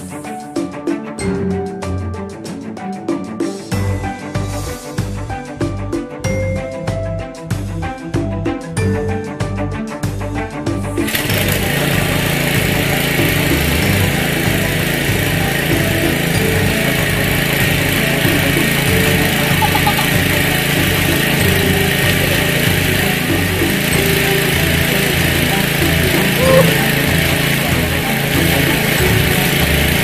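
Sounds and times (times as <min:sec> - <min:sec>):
well pump engine running: 0:11.0 - 0:30.0.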